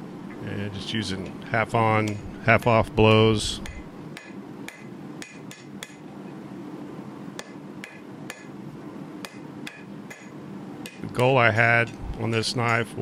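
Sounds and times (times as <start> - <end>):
hammer striking steel on anvil: 3.6 - 6.1, 7.4 - 8.6, 9.2 - 12.8.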